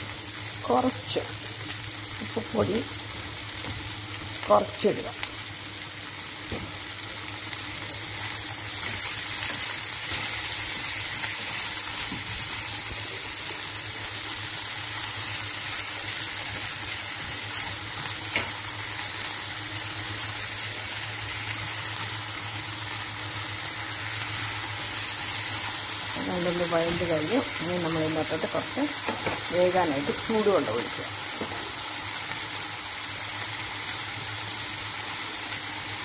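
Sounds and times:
vegetables sizzling in oil: 0.0 - 36.0
spatula turning food: 7.6 - 13.2.

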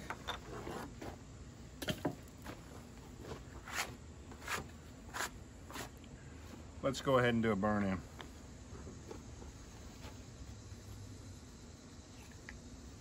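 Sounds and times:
wood and tools set on table: 0.0 - 1.2, 1.8 - 6.0.

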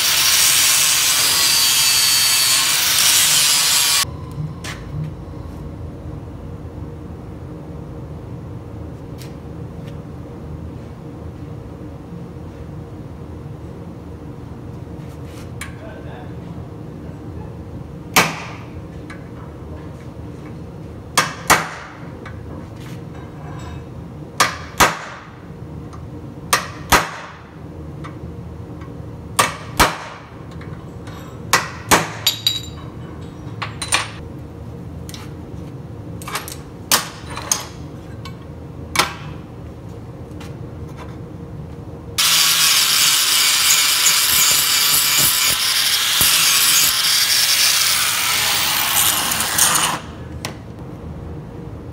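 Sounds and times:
angle grinder grinding metal: 0.0 - 4.0, 42.2 - 50.0.

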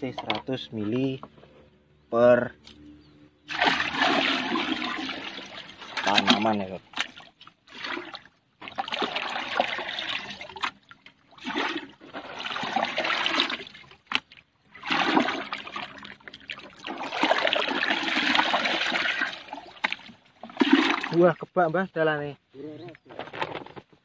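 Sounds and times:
liquid pouring and splashing: 3.5 - 21.4.

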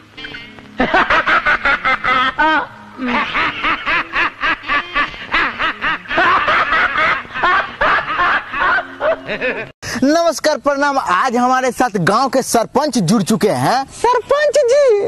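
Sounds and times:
loud laughter in bursts: 0.8 - 9.7.

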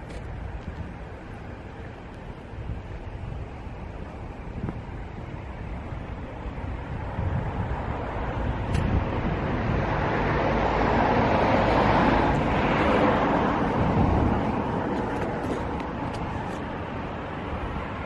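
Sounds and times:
steady low rumble: 0.0 - 18.0
vehicle passing by: 7.2 - 16.6.

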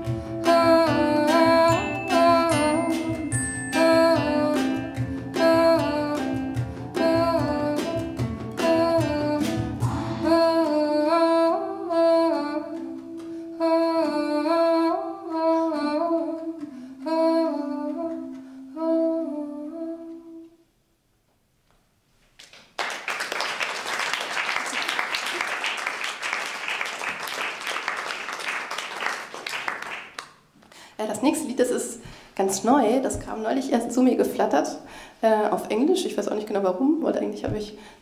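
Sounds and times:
strummed acoustic guitar: 0.0 - 10.6
wordless sung melody: 0.0 - 20.6
audience applause: 22.5 - 30.3.

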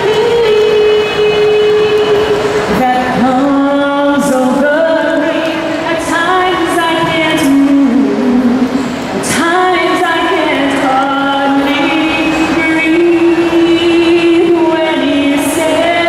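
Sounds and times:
woman singing a ballad: 0.0 - 16.0.

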